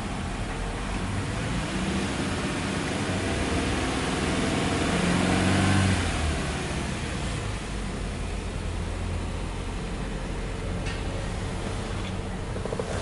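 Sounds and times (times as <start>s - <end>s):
car engine revving: 1.2s - 7.6s.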